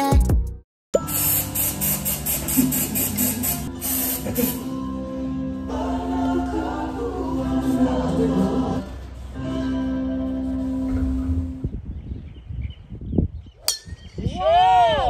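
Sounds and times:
background song with singing: 4.2 - 11.4.

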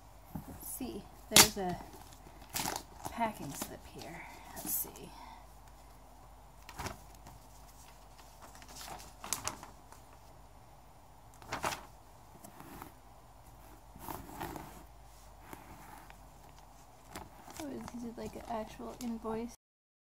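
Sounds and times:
paper rustling: 6.6 - 10.4, 11.3 - 19.4
cardboard box sliding on carpet: 12.4 - 16.2.

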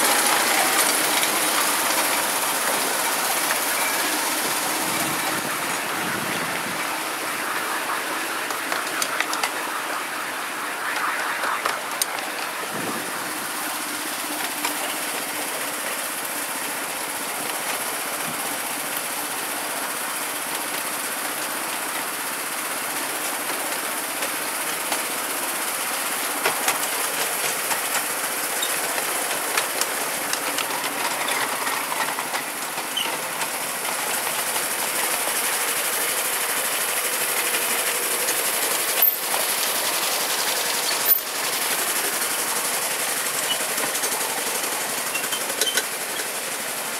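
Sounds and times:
train wheels clattering on rails: 26.2 - 46.9.

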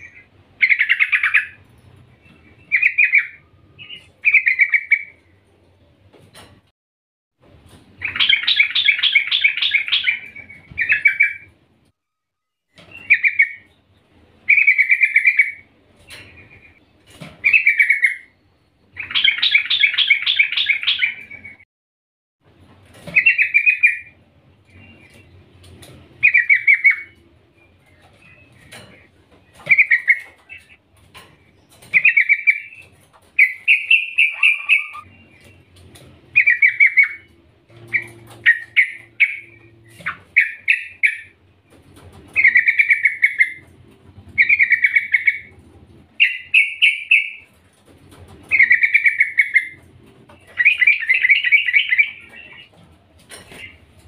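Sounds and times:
bird chattering call: 33.4 - 35.1.

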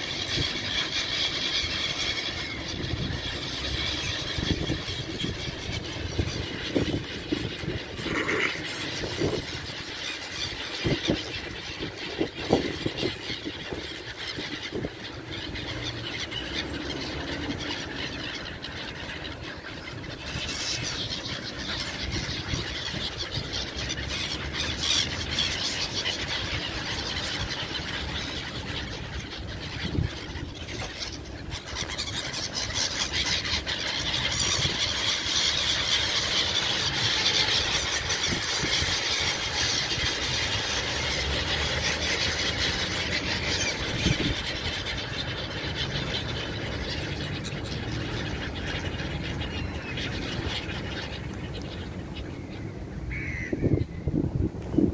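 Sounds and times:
flock of gulls calling: 0.0 - 54.9.

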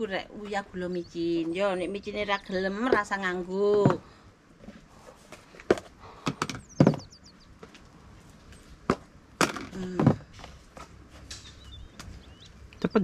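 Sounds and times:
bird chirping: 0.6 - 3.4, 6.1 - 7.7, 11.3 - 13.0.

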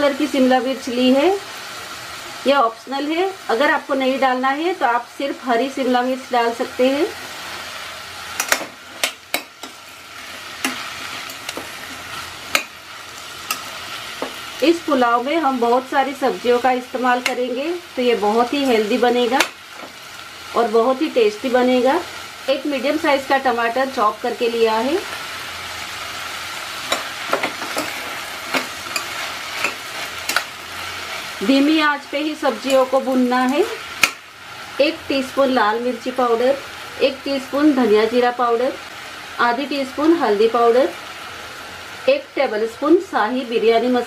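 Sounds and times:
vegetables sizzling in oil: 0.0 - 44.0
spoon knocking and scraping a pot: 26.9 - 30.5.

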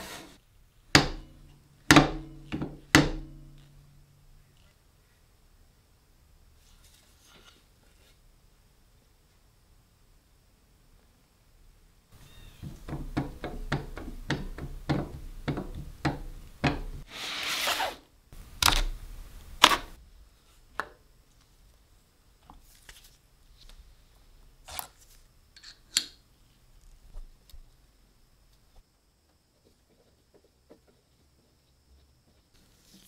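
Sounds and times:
short scrape: 0.0 - 0.4, 17.0 - 18.0
knocks and clicks on workbench: 12.6 - 17.0.

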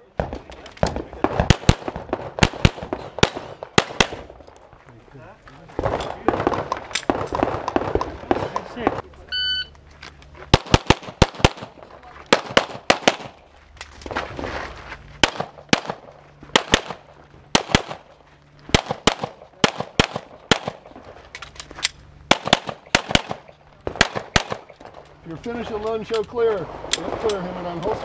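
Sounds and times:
rapid pistol shots: 0.2 - 4.3, 10.5 - 13.4, 15.2 - 18.1, 18.7 - 21.0, 22.3 - 25.0.

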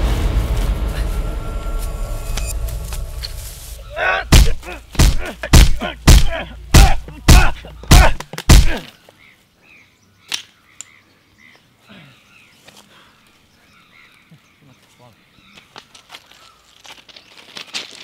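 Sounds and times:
low rumble: 0.0 - 7.9
short grunts: 3.9 - 8.9
heavy punch thuds: 4.2 - 8.8.

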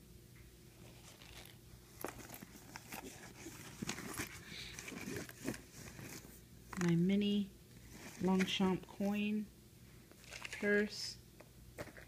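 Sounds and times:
rustling in a handbag: 0.8 - 7.0, 7.8 - 9.1, 10.2 - 10.9.

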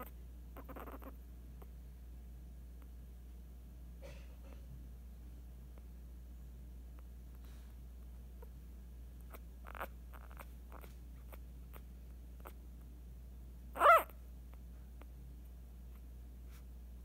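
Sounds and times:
puppy squeaking: 0.0 - 1.7, 9.2 - 12.6, 13.7 - 14.2.

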